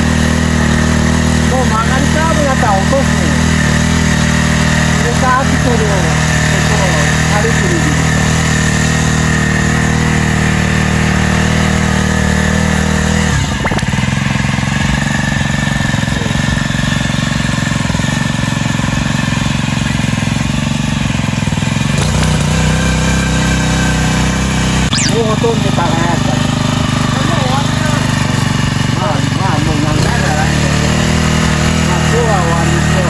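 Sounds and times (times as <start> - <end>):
cultivator engine running: 0.0 - 24.3, 25.7 - 33.0.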